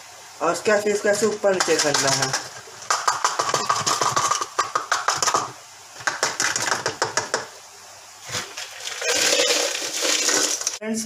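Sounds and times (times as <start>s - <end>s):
salt rattling through plastic funnel: 1.3s - 7.5s, 8.3s - 10.8s.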